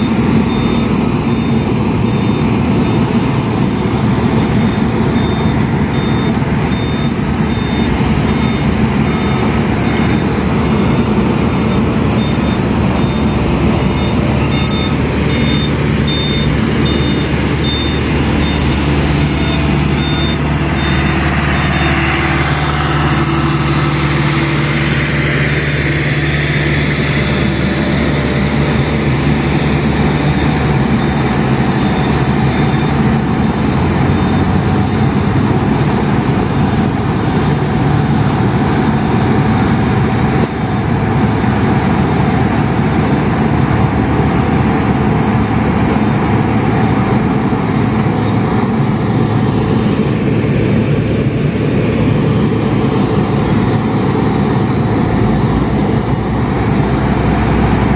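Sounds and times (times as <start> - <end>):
high-pitched beeping alarm: 0.0 - 40.9
paving machinery diesel engines: 0.0 - 57.9.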